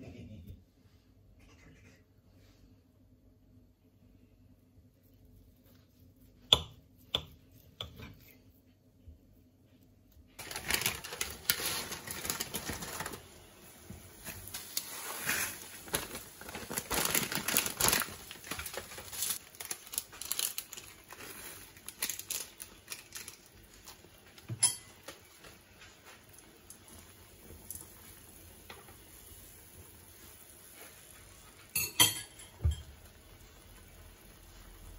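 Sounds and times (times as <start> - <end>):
plastic sachet crinkling: 10.4 - 24.4.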